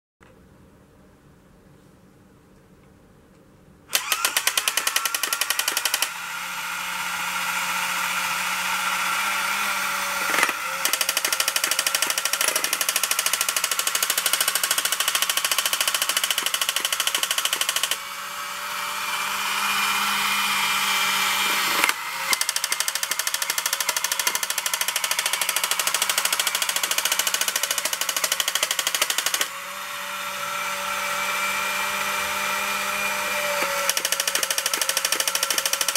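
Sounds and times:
toy motor whirring: 0:03.9 - 0:35.9
electronic rattle and tones: 0:10.2 - 0:18.0, 0:33.9 - 0:35.9.

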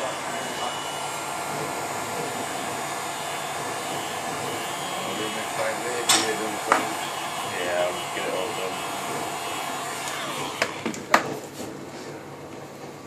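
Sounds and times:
heat gun fan blowing: 0:00.0 - 0:12.3.

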